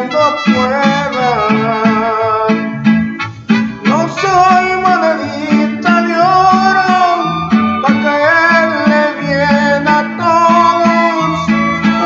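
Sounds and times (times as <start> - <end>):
bass line: 0.0 - 12.0
guitar: 0.0 - 12.0
person singing long notes: 3.9 - 12.0.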